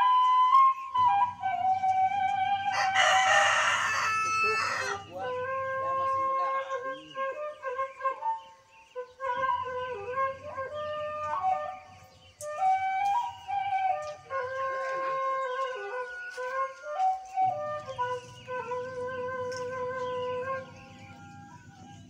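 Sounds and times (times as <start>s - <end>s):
flute background music: 0.0s - 22.0s
rooster crowing: 2.6s - 5.2s.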